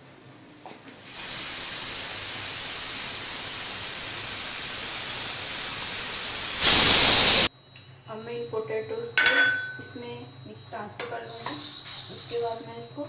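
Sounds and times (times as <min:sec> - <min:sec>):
pressure cooker whistling: 0:01.1 - 0:07.5.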